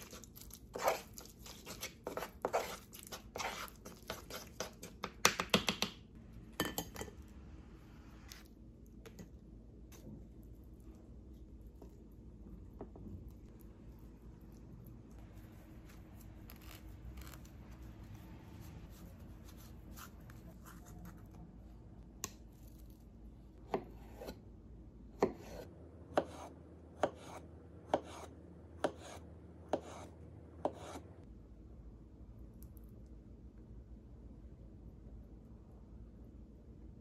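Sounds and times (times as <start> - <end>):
knife scraping through avocado: 0.0 - 4.9.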